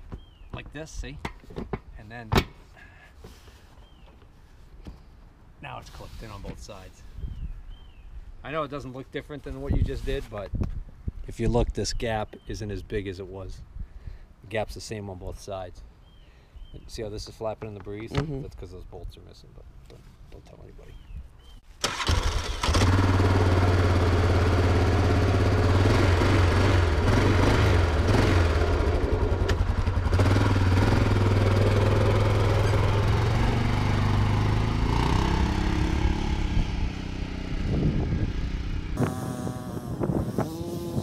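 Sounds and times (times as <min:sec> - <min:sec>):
atv engine idling and revving: 0:22.6 - 0:41.0.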